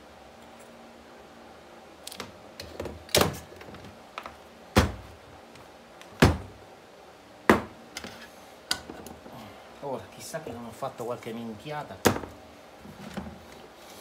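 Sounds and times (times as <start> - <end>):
objects knocking on wooden workbench: 7.5 - 7.8.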